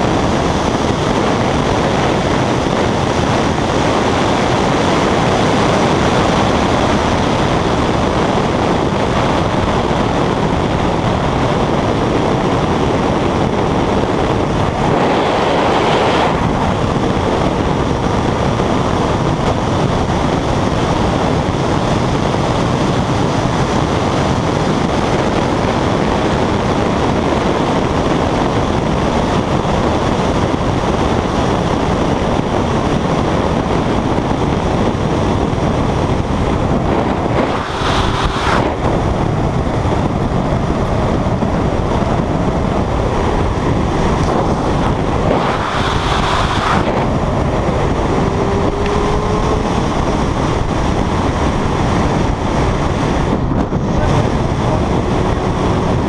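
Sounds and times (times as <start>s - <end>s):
vehicle driving noise: 0.0s - 56.0s.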